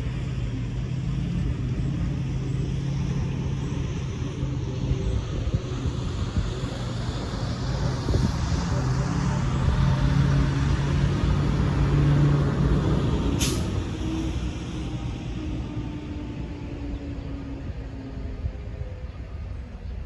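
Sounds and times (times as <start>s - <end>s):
distant diesel locomotive droning: 0.0s - 20.0s
sharp hiss: 13.4s - 13.8s.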